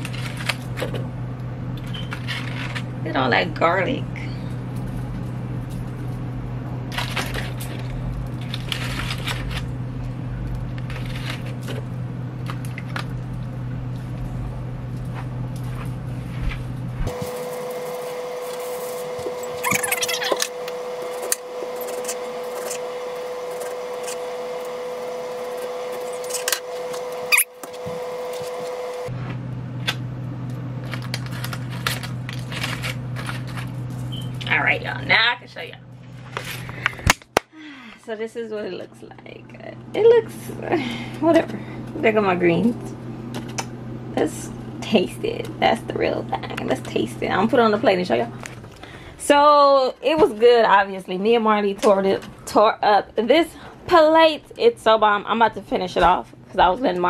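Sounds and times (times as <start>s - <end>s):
higher-pitched hum: 0.0s - 51.9s
steady low hum: 0.0s - 57.0s
aluminium foil crinkling: 6.9s - 9.7s, 10.4s - 13.4s, 30.8s - 34.2s.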